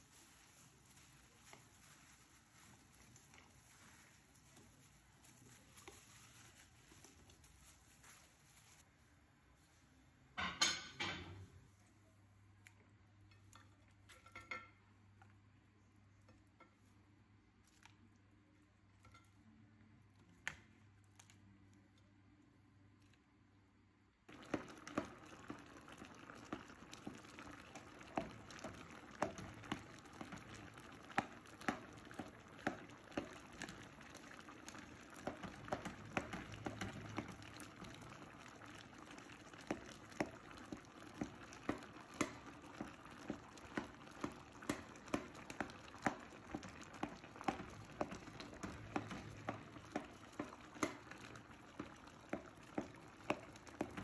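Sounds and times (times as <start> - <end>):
spatula stirring in a pot: 0.0 - 8.2, 24.3 - 54.0
thick liquid bubbling and popping: 24.3 - 54.0.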